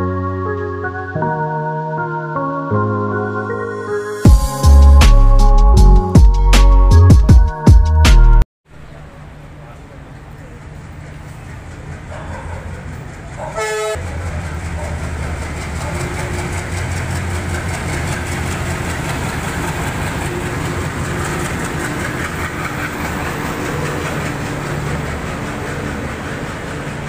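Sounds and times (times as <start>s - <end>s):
diesel locomotive engine drone: 8.7s - 27.0s
train wheels rolling: 9.6s - 27.0s.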